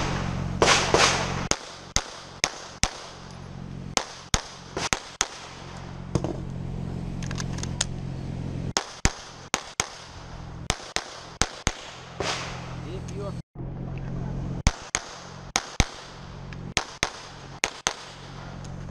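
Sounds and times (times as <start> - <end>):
pistol shots: 0.0 - 3.3, 3.9 - 6.4, 8.8 - 12.9, 14.6 - 18.7.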